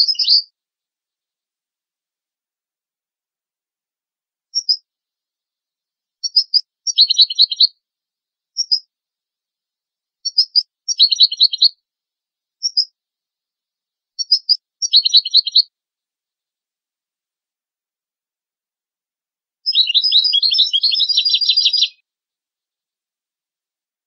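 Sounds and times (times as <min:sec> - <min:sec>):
goldfinch song: 0:00.0 - 0:00.6, 0:04.5 - 0:15.8, 0:19.6 - 0:22.1.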